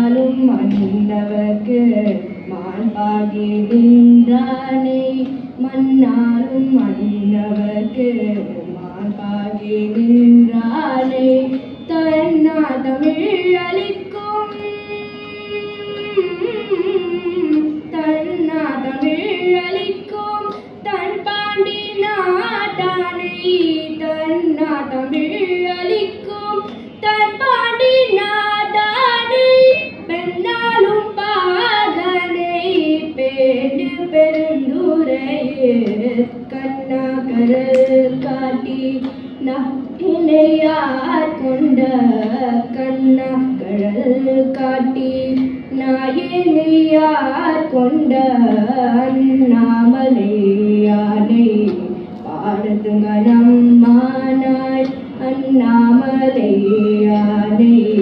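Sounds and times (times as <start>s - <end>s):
girl singing devotional hymn: 0.0s - 58.0s.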